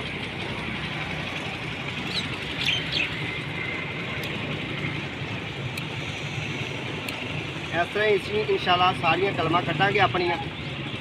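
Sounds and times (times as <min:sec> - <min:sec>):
outdoor background noise: 0:00.0 - 0:11.0
bird chirps: 0:02.1 - 0:03.3.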